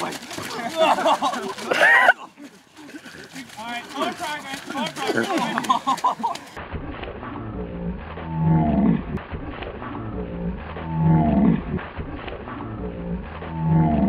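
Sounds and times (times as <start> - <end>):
deep drawn-out roar: 7.2 - 11.8, 12.4 - 14.0.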